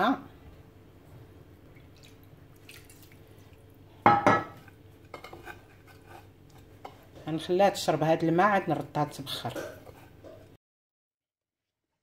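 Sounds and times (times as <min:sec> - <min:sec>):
water trickling from jug: 0:01.8 - 0:03.7.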